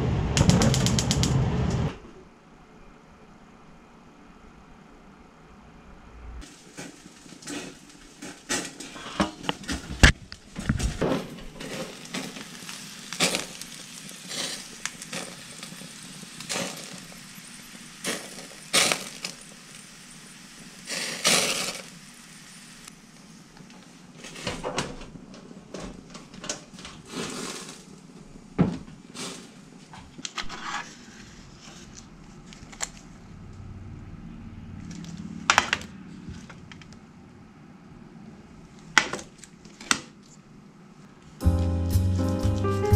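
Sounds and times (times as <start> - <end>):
rushing noise: 0.0 - 2.1.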